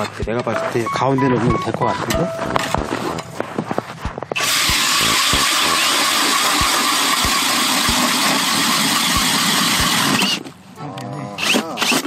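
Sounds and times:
electric drill boring through ice: 4.4s - 10.5s, 11.4s - 12.0s.

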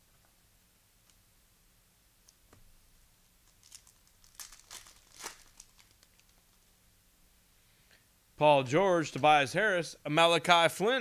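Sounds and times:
cellophane crinkling and tearing: 3.4s - 6.6s.

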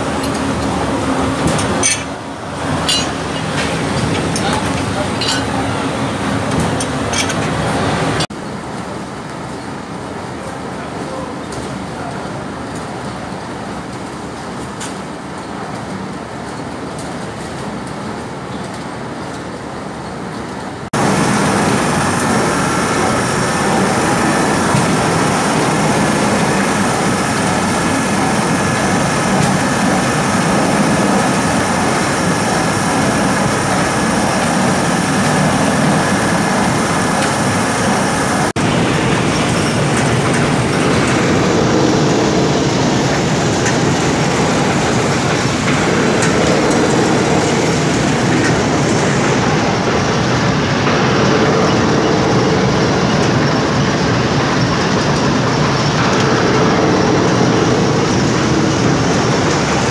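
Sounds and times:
mill machinery running: 0.0s - 59.9s.

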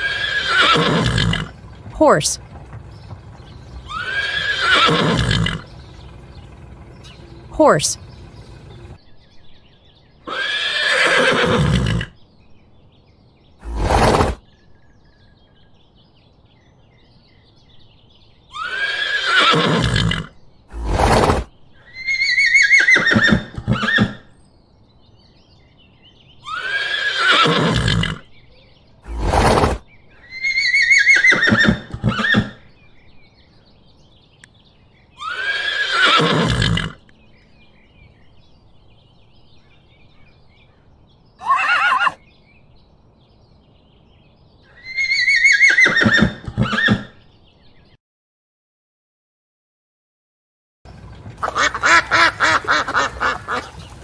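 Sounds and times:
horse whinnying: 0.0s - 5.9s, 10.3s - 12.2s, 13.6s - 14.4s, 18.5s - 24.3s, 26.4s - 28.3s, 29.1s - 32.6s, 35.2s - 37.0s, 41.4s - 42.2s, 44.7s - 47.2s.

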